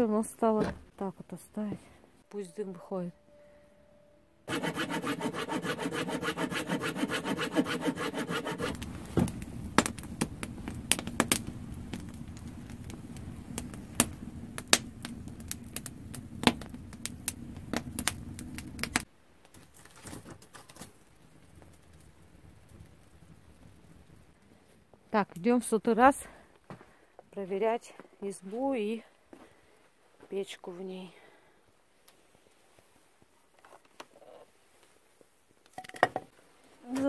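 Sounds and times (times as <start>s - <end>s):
hand saw cutting log: 4.5s - 8.8s
wood fire crackling and popping: 5.8s - 25.7s.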